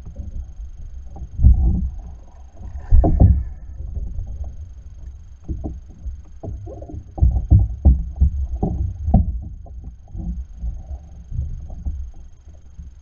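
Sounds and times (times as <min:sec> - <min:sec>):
water lapping against hull: 0:00.0 - 0:12.8.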